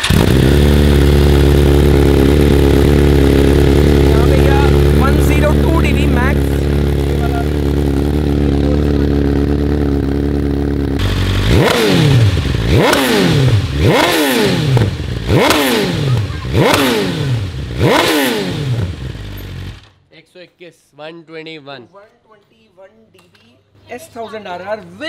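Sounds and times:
motorcycle exhaust idling and revving: 0:00.0 - 0:19.9.

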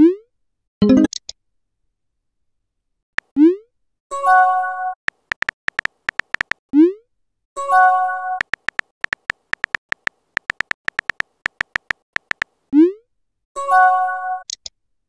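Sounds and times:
phone keyboard tap clicks: 0:05.1 - 0:06.6, 0:08.4 - 0:12.5.

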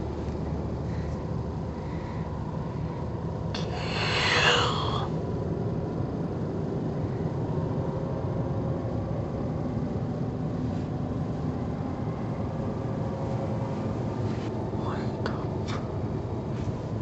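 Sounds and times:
faint hum: 0:00.0 - 0:17.0
low rumbling noise: 0:00.0 - 0:17.0.

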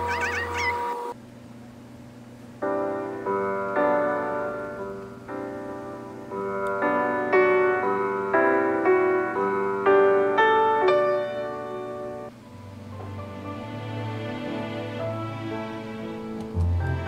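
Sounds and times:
soft piano music through speakers: 0:02.5 - 0:17.0.

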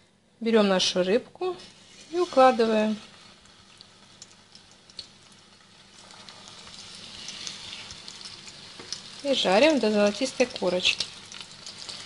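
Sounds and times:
fish sizzling in oil: 0:01.4 - 0:12.0
small crackles of oil: 0:02.9 - 0:09.4, 0:10.0 - 0:12.0.

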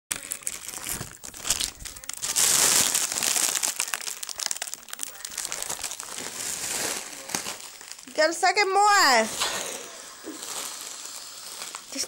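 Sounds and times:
foil balloon crinkling: 0:00.1 - 0:12.0
gas hissing through balloon neck: 0:09.1 - 0:12.0.

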